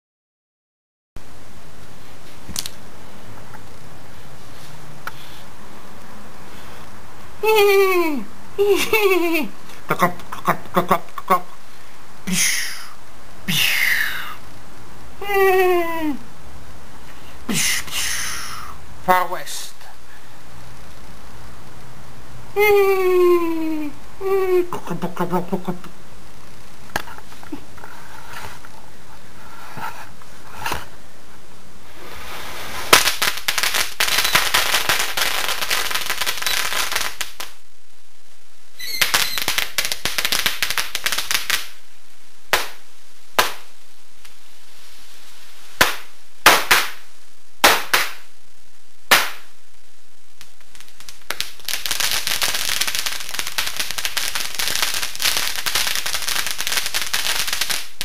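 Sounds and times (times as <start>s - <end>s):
firecrackers crackling: 31.9s - 37.6s, 38.8s - 41.8s, 42.4s - 44.4s, 45.6s - 48.3s, 49.0s - 49.6s, 50.3s - 58.0s
firecracker bangs: 38.8s - 41.8s, 42.5s - 42.8s, 43.4s - 43.7s, 45.8s - 48.3s, 49.1s - 49.5s.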